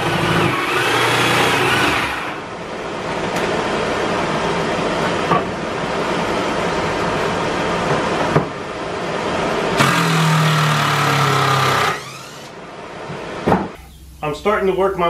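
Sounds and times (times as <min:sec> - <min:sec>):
cordless drill driving screw: 0:09.8 - 0:12.5.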